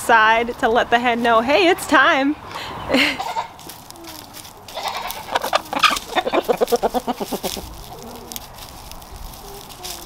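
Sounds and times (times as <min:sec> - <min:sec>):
chickens clucking: 0:02.5 - 0:10.0
low murmuring chicken calls: 0:03.1 - 0:10.0.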